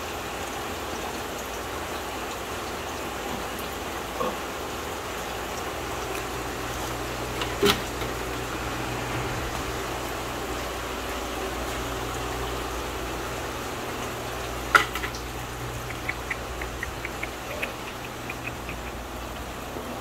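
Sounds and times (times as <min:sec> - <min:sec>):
pumps and aerated water hum: 0:00.0 - 0:20.0
light ticks: 0:15.8 - 0:19.1.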